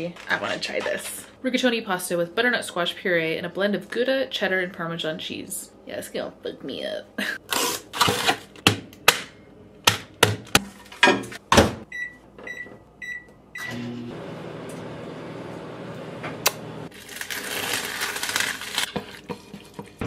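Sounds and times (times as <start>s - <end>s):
microwave humming: 11.5s - 18.8s.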